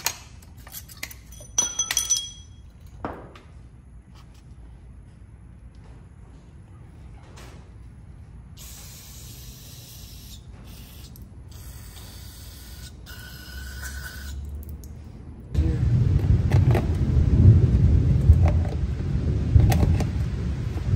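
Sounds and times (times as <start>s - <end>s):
aerosol spray hissing: 8.6s - 14.4s.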